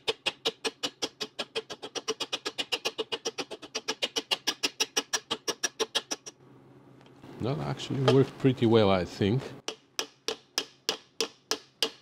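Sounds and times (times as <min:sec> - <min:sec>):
hammer tapping on metal: 0:09.6 - 0:12.0.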